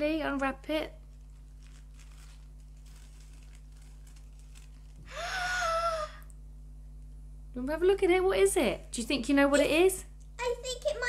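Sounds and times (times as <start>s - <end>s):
tissue paper rustling: 1.0s - 5.2s.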